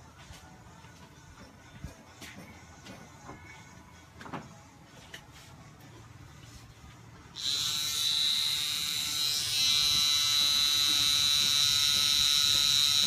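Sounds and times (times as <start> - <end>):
tattoo pen whine: 7.3 - 13.0.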